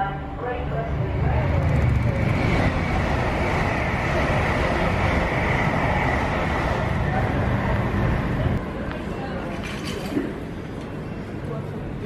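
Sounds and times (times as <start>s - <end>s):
train rushing past on rails: 0.0s - 9.6s.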